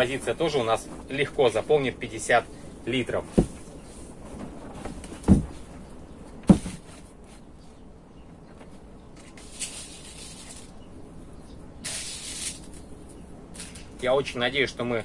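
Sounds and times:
plastic planter thump: 5.2s - 5.6s, 6.4s - 7.0s
granules pouring rattling hiss: 9.4s - 10.7s, 11.8s - 12.8s.

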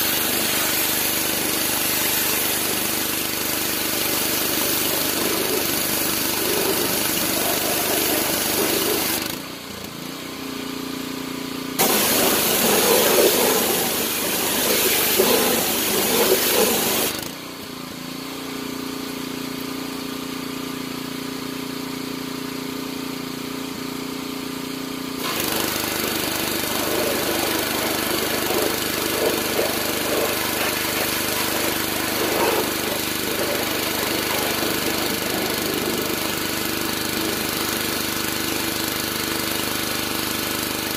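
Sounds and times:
water spray hissing: 0.0s - 9.3s, 11.8s - 17.2s, 25.2s - 39.0s
pressure washer engine running: 0.0s - 40.9s.

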